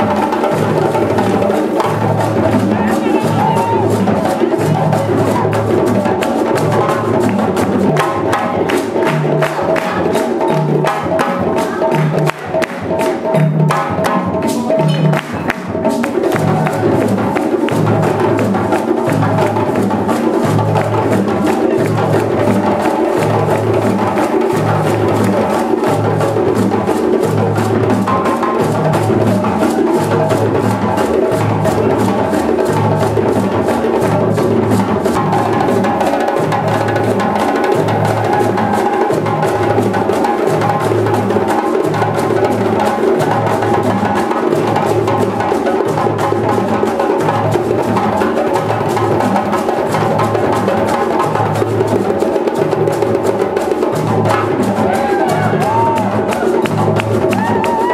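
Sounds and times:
balafon notes: 0.0s - 19.8s
djembes and bass drums: 0.0s - 57.9s
calabash shakers: 14.4s - 57.9s.

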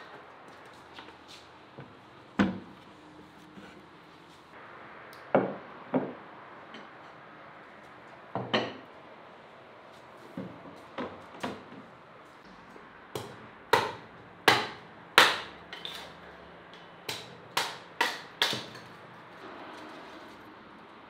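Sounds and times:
hatchet chopping kindling on wood: 13.2s - 16.0s, 17.1s - 18.9s.

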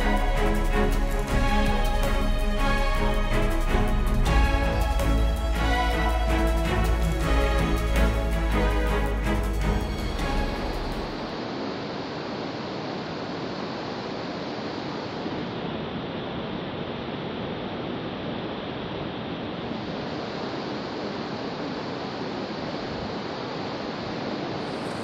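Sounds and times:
wind rushing: 0.0s - 11.5s
sea: 0.0s - 25.0s.

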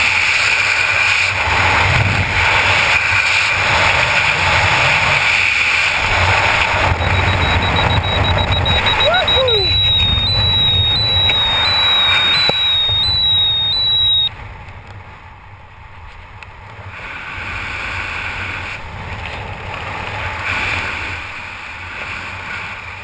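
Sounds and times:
wind rushing over microphone: 3.6s - 14.3s
loud high electronic tone: 6.8s - 14.3s.

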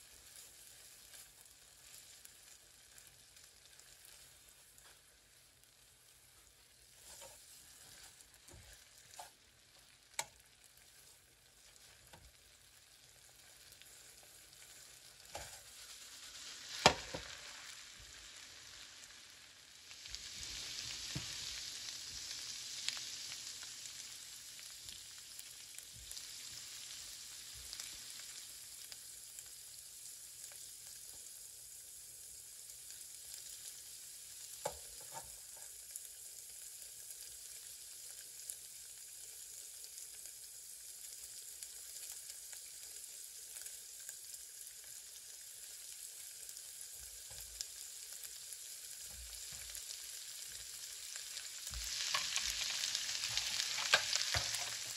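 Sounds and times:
food sizzling in a pan: 0.0s - 54.9s
utensil clicking against pan: 51.8s - 54.9s.

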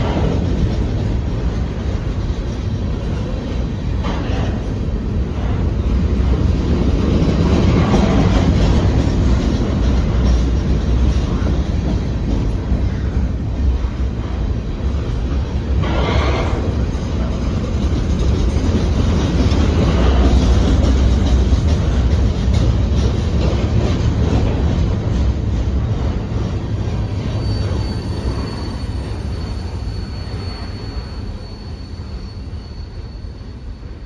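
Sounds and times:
train wheels rumbling and clacking: 0.0s - 34.0s.

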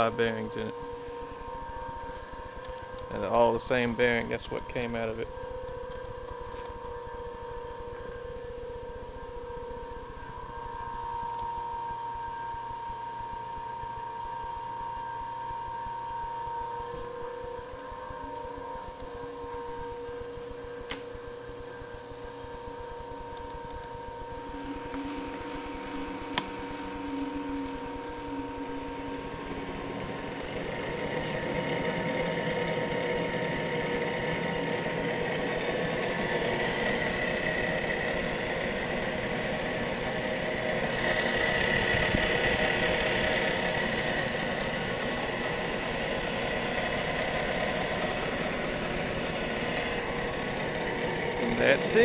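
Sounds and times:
milling machine spindle humming: 0.0s - 52.0s.

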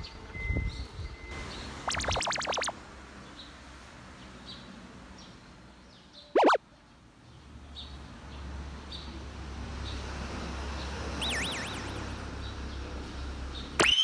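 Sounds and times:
small birds chirping: 1.5s - 2.7s, 11.2s - 12.9s
warbling trilled bird call: 1.9s - 2.7s, 6.4s - 6.6s, 11.2s - 12.1s, 13.8s - 14.0s.

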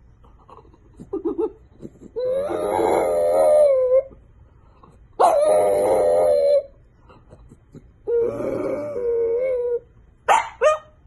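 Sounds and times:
dog howling: 2.2s - 4.2s, 5.2s - 6.8s, 8.0s - 9.9s.

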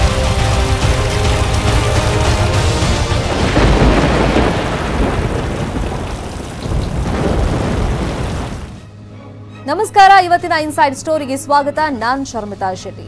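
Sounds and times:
deep thunder rumble: 0.0s - 8.8s
heavy rain: 0.0s - 8.8s.

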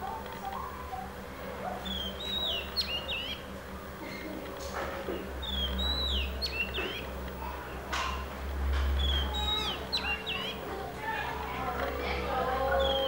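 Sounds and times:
low steady hum: 0.0s - 13.0s
songbird whistling: 1.8s - 3.5s, 5.4s - 7.1s, 9.0s - 10.6s, 12.7s - 13.0s.

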